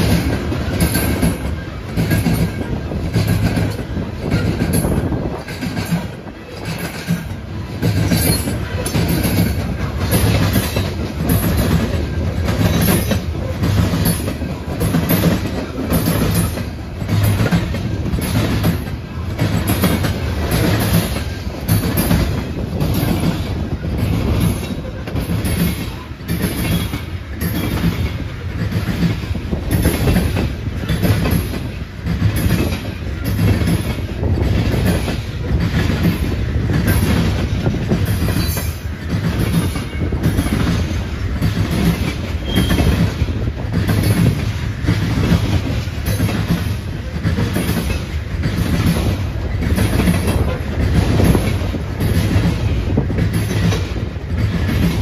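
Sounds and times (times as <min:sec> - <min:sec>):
freight train cars rolling past: 0:00.0 - 0:55.0
wheels clacking over rail joints: 0:00.0 - 0:55.0.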